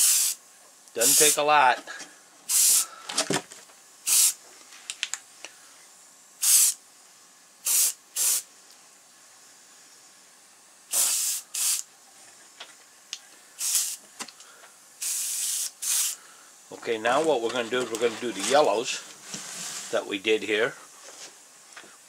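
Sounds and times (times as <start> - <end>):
airbrush spraying hiss: 0.0 - 0.4, 1.0 - 1.6, 2.5 - 2.9, 4.0 - 4.4, 6.3 - 8.6, 9.2 - 11.9, 13.1 - 14.1, 14.8 - 16.7.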